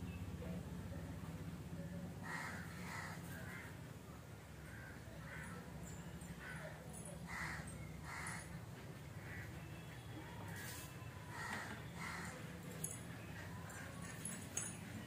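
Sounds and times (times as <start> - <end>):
crow cawing: 2.2 - 3.8, 4.7 - 5.6, 7.3 - 8.6, 11.3 - 12.4.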